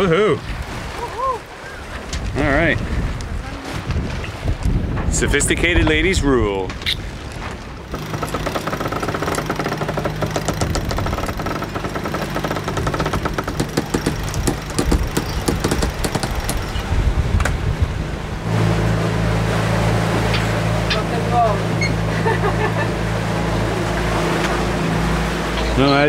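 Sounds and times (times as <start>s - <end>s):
steady low hum: 7.8s - 26.0s
winch ratcheting: 7.9s - 16.9s.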